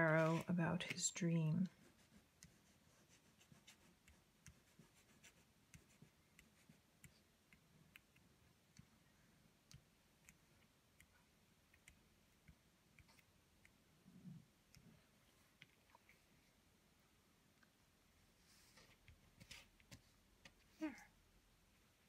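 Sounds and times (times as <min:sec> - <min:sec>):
crayon scratching on paper: 0:01.6 - 0:07.2.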